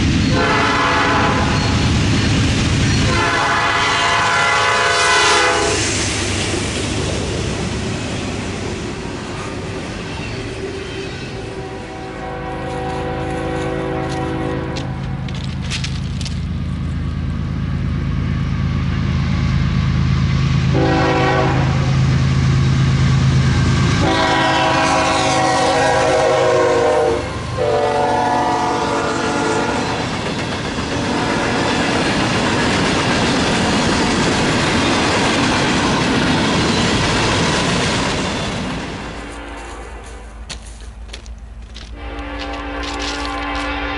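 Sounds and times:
diesel locomotives droning: 0.0 - 43.9
freight cars rumbling over rails: 0.0 - 43.9
train air horn blasts: 0.3 - 1.8, 3.0 - 5.9, 11.4 - 15.4, 20.7 - 22.1, 23.9 - 30.1, 31.1 - 31.7, 39.2 - 40.5, 41.9 - 43.9.

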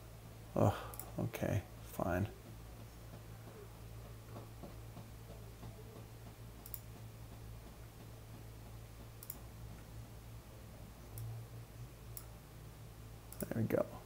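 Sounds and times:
low electrical hum: 0.0 - 14.0
computer mouse clicks: 5.6 - 7.0, 9.2 - 9.5, 12.1 - 12.3.

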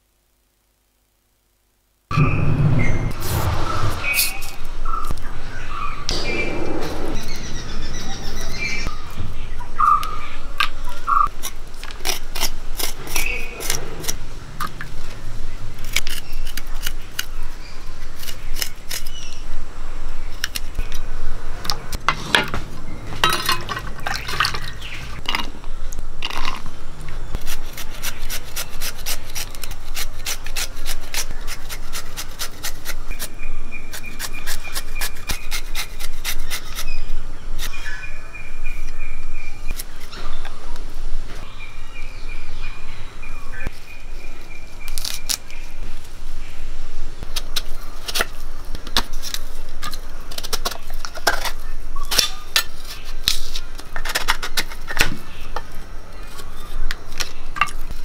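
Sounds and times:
knife scraping and cutting: 11.2 - 14.2, 15.8 - 17.4, 18.1 - 19.3, 33.9 - 37.8.

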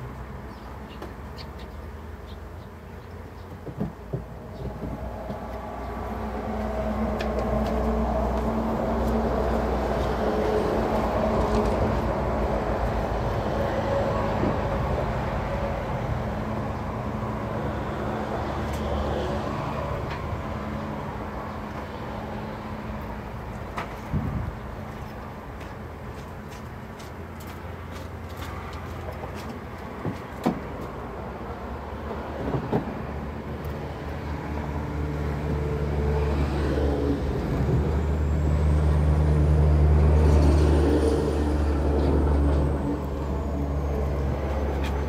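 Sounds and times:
large vehicle rumbling past: 4.4 - 26.0, 30.6 - 45.0.

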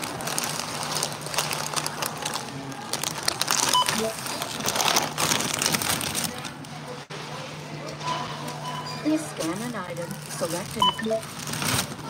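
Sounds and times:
plastic snack bag crinkling: 0.0 - 6.7, 9.3 - 12.0.

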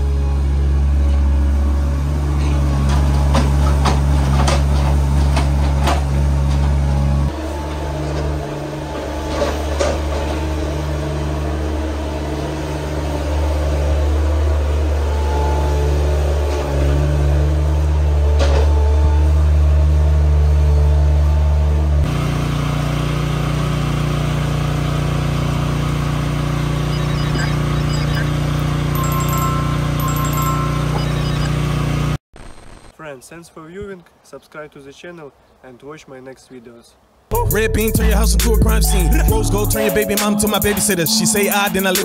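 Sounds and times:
loader engine running: 0.0 - 32.2.

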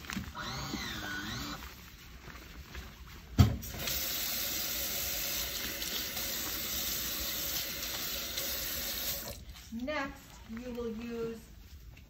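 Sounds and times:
faucet water splashing into sink: 3.6 - 9.4.

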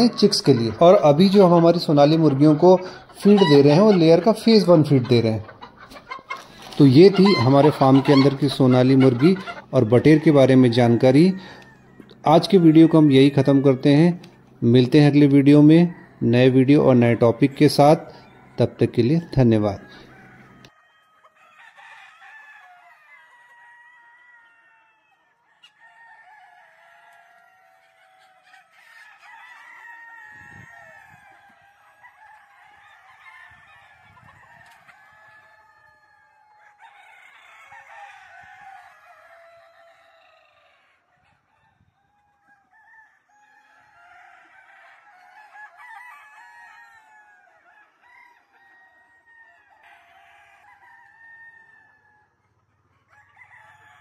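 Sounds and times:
rooster crowing: 0.0 - 5.0, 6.8 - 54.0
chickens clucking: 0.0 - 54.0.

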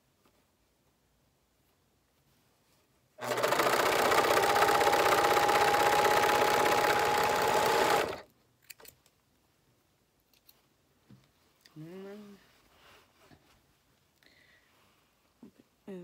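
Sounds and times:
sewing machine running: 3.2 - 8.2.

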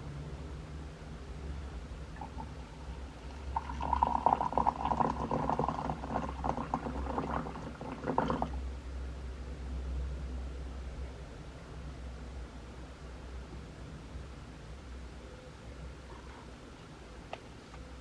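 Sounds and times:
water pouring into glass mug: 3.2 - 8.6.

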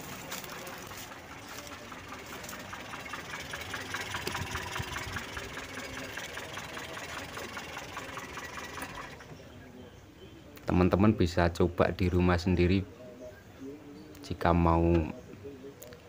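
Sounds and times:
petrol engine idling: 0.0 - 10.2.

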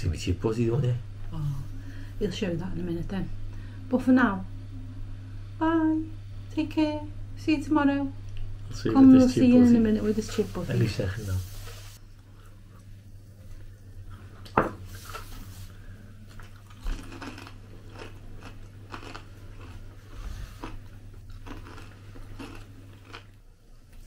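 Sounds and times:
steady low hum: 0.0 - 24.0
person crunching and chewing: 16.2 - 23.4.

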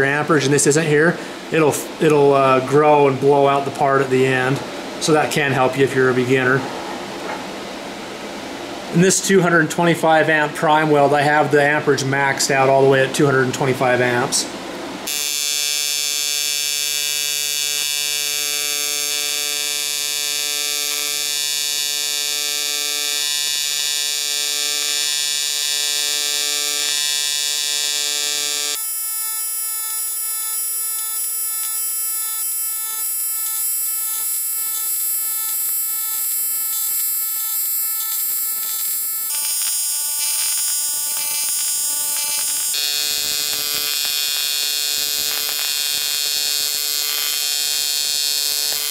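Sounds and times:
welding arc buzzing: 15.0 - 48.9.

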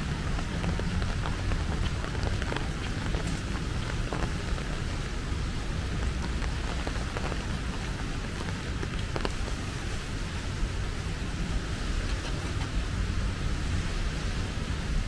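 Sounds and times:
drops ticking: 0.0 - 10.0
steady rain: 0.0 - 15.0.

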